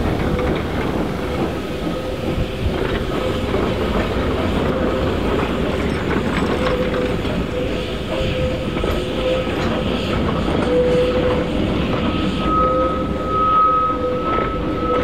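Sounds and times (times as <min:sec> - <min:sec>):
steam locomotive running: 0:00.0 - 0:15.0
wheels on rails: 0:00.0 - 0:15.0.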